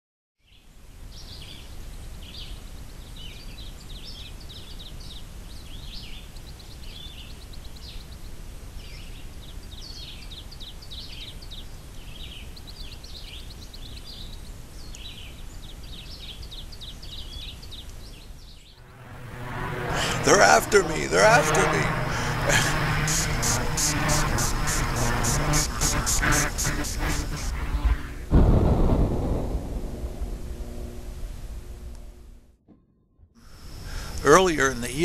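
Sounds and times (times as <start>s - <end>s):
low outdoor rumble: 18.8s - 32.6s.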